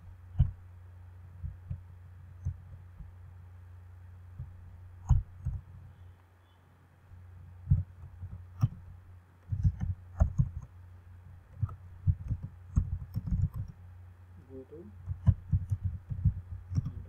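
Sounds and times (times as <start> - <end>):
low steady hum: 0.0 - 17.0
keyboard keys clicking: 9.4 - 10.7, 11.5 - 13.8, 15.0 - 17.0.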